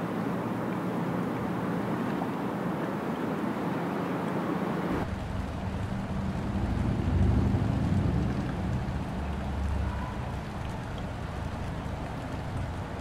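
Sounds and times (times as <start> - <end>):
boat engine rumbling: 4.7 - 13.0.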